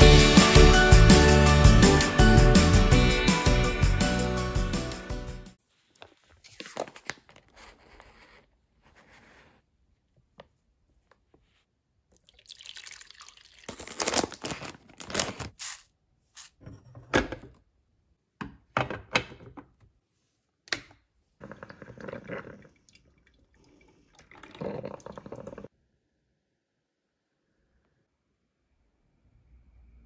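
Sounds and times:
water poured into plastic reservoir: 12.1s - 14.8s, 21.4s - 25.7s
coffee maker hissing and gurgling: 23.6s - 25.7s.

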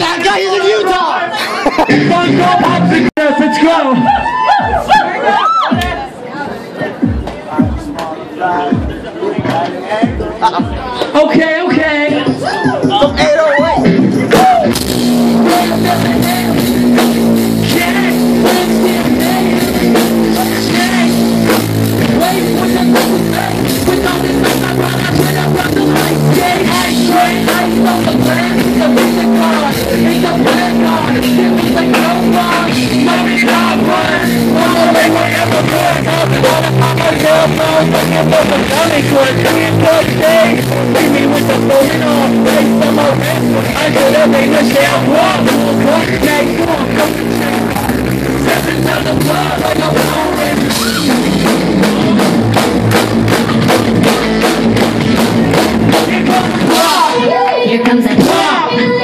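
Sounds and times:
drum kit steady beat: 0.0s - 3.2s, 4.0s - 5.0s, 5.6s - 59.0s
person singing: 11.6s - 52.6s, 55.2s - 59.0s.

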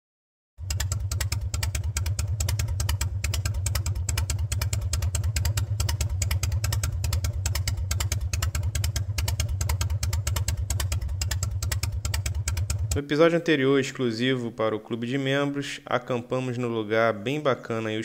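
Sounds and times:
motorcycle engine idling: 0.6s - 13.2s.

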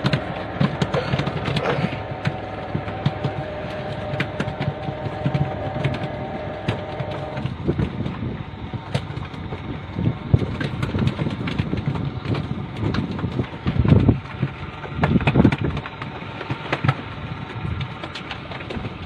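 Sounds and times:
scattered knocks: 0.0s - 8.2s
boat engine running: 0.0s - 19.0s
wind buffeting microphone: 0.0s - 19.0s.

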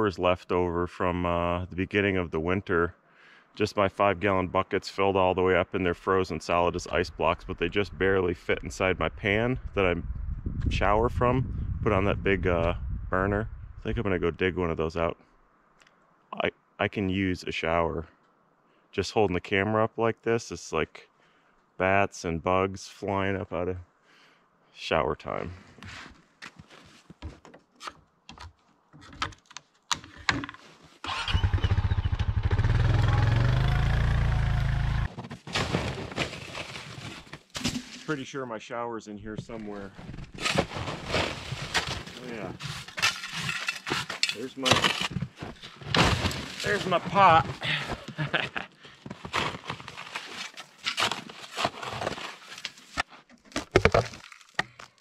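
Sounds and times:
quad bike engine running: 31.2s - 35.1s
plastic shovel digging snow: 35.1s - 38.2s, 39.7s - 47.6s, 49.2s - 52.9s.

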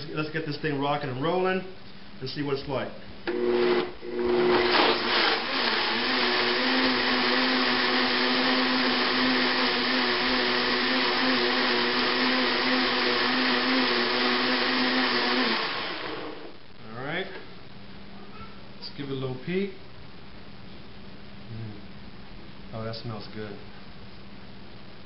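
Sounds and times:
blender motor running: 3.3s - 16.5s.

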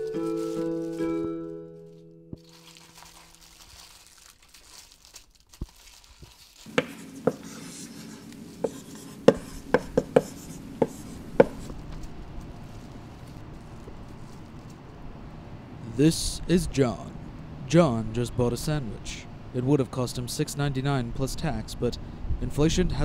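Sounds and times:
aluminium foil crinkling: 0.0s - 8.2s, 11.2s - 14.8s.

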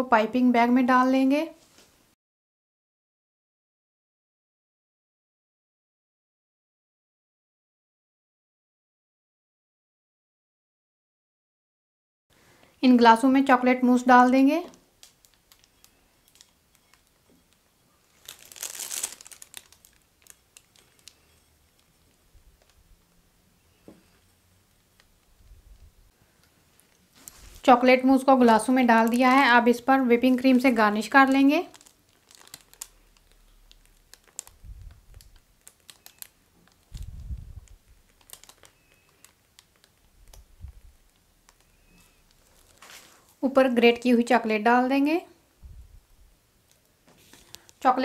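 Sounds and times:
plastic piping bag crinkling: 14.3s - 23.9s, 24.6s - 26.0s, 26.8s - 44.1s, 46.6s - 47.9s
soft low thumps: 36.9s - 38.0s, 45.6s - 46.3s.

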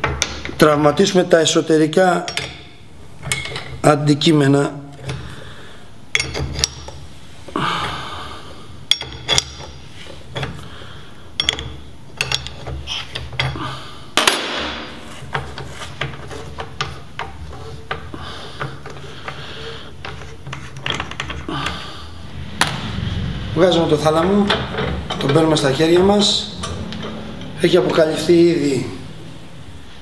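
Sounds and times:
metal clicks and knocks: 0.0s - 0.6s, 2.3s - 3.8s, 6.1s - 7.0s, 8.9s - 10.6s, 11.4s - 13.6s, 14.2s - 19.4s, 20.0s - 21.8s, 24.2s - 27.6s
metal scrape: 22.2s - 30.0s.

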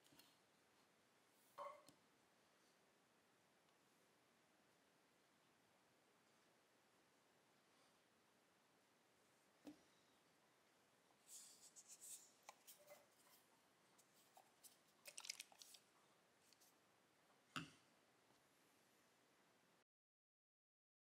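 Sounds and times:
small objects clicking and tapping: 14.3s - 15.8s.

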